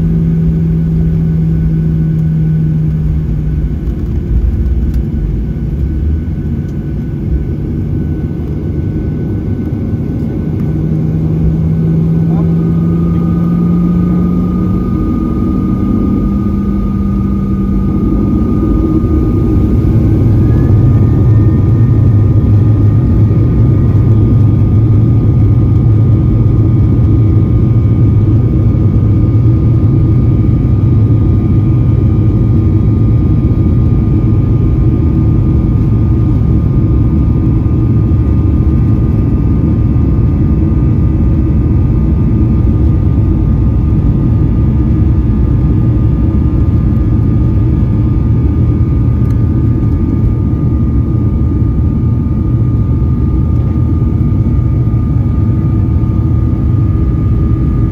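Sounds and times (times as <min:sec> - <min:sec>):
jet engines roaring in cabin: 0:00.0 - 0:57.9.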